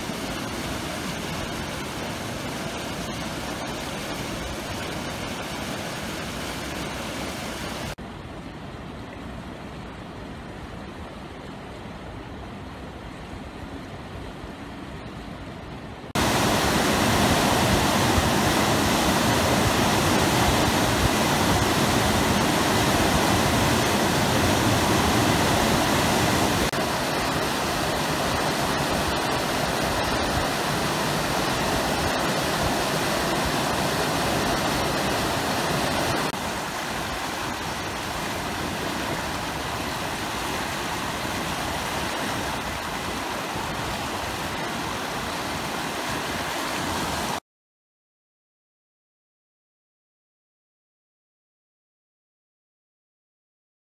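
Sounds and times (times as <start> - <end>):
fast-flowing floodwater rushing: 0.0 - 14.6, 16.2 - 47.4.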